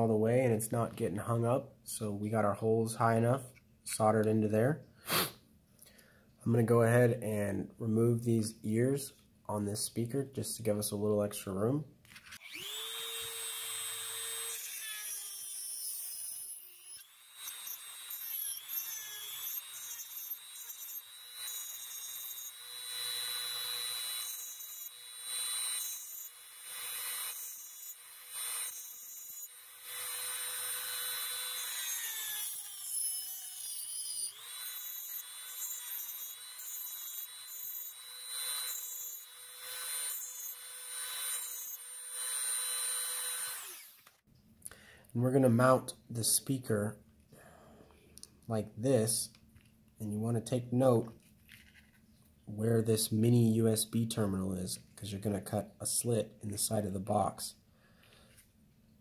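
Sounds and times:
rasping plastic cutting: 12.1 - 44.1
rotary tool whining: 12.1 - 44.2.

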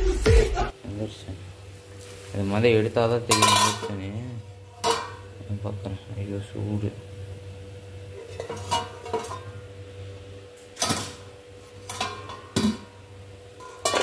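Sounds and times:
metal cookware clanking: 3.1 - 5.4, 8.1 - 9.7, 10.7 - 13.0, 13.6 - 14.0.

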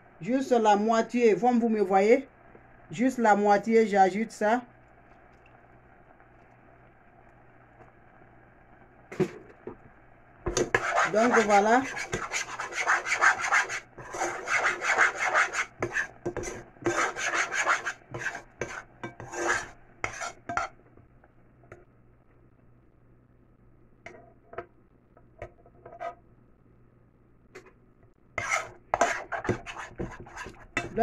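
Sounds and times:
utensil scraping saucepan bottom: 10.5 - 20.8, 28.4 - 31.0.

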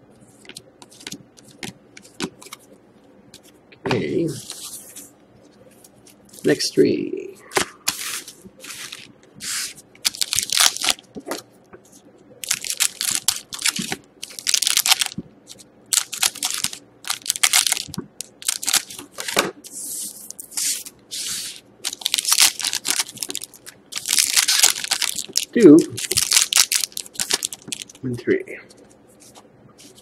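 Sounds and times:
foil wrappers crinkling: 7.9 - 11.0, 12.4 - 19.4, 20.0 - 28.0, 28.7 - 30.0.

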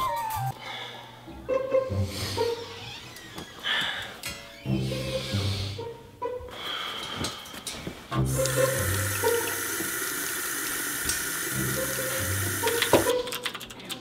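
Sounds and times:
tap running into sink: 8.2 - 13.2.

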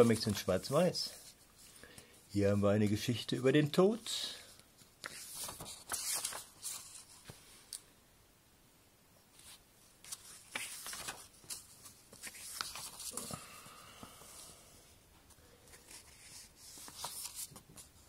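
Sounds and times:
paper pages turning and rustling: 0.0 - 1.7, 4.6 - 7.8, 9.3 - 13.4, 15.6 - 18.0.

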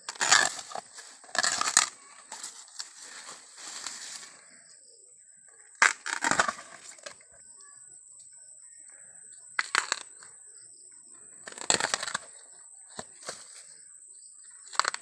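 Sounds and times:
bamboo sheaths tearing: 0.1 - 4.4, 5.8 - 7.2, 9.6 - 10.2, 11.5 - 12.4, 14.7 - 15.0.

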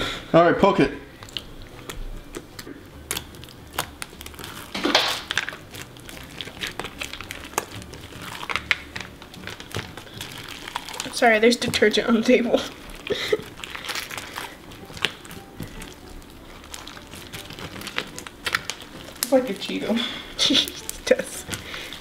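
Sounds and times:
slime squish: 1.1 - 22.0
slime sticky clicks and crackles: 1.2 - 12.0, 12.7 - 19.4.

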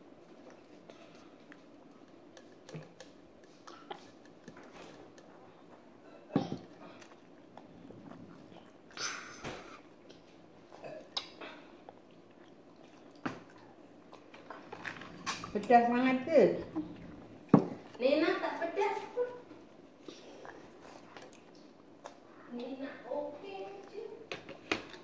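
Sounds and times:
child chewing noodles: 0.0 - 6.0, 6.6 - 15.6, 19.6 - 22.5.

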